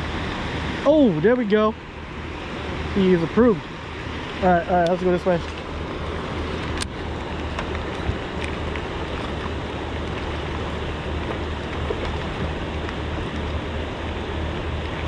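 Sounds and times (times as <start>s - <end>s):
constant low hum: 0.0s - 15.0s
wind and water rushing: 0.0s - 15.0s.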